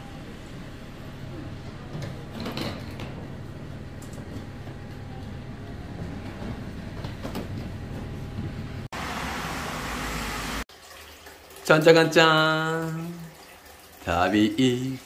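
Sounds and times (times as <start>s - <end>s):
water running from tap: 10.4s - 15.0s.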